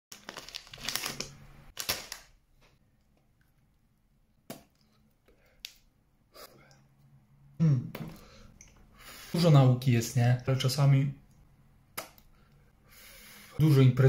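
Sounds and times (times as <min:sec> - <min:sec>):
breadstick snapping: 0:12.0 - 0:12.3.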